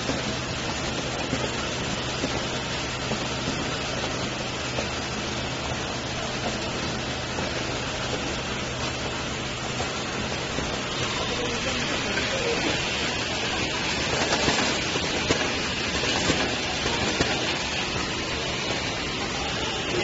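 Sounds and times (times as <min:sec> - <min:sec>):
machine hiss: 0:00.0 - 0:20.0.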